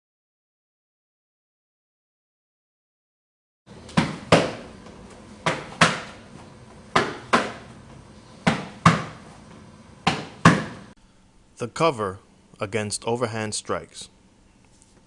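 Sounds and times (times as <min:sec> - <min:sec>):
gloved punches hitting forearms: 0:03.9 - 0:04.7, 0:07.0 - 0:07.6.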